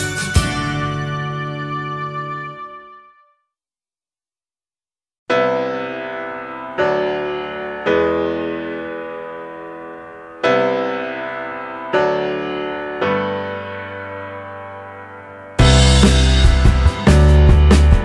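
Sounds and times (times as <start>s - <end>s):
slow piano chords: 5.3s - 18.0s.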